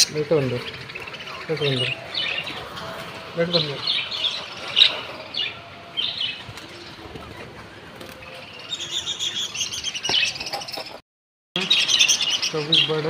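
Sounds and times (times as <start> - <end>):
budgerigars chirping: 0.0 - 2.6, 3.4 - 7.5, 8.3 - 11.0, 11.6 - 13.0
wings fluttering: 2.1 - 8.6.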